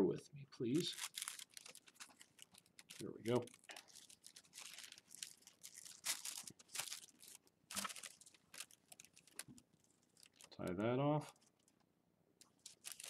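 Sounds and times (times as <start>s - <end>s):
tissue paper crinkling: 0.7s - 10.5s, 12.5s - 13.0s.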